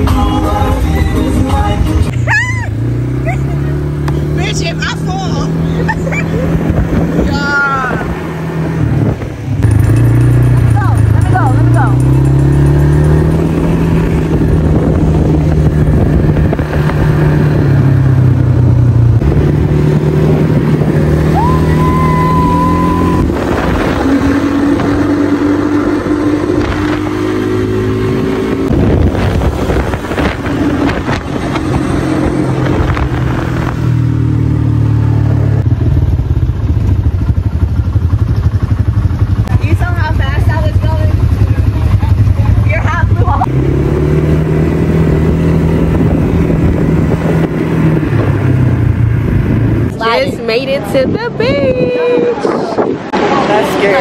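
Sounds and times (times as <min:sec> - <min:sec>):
atv engine running: 0:00.0 - 0:54.0
wind on microphone: 0:06.2 - 0:09.8, 0:13.2 - 0:34.1, 0:43.5 - 0:54.0.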